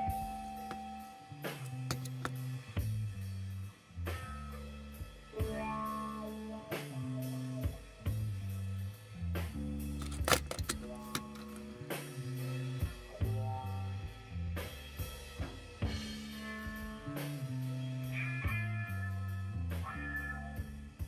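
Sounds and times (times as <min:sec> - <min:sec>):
music with drum beat and bass: 0:12.8 - 0:17.6.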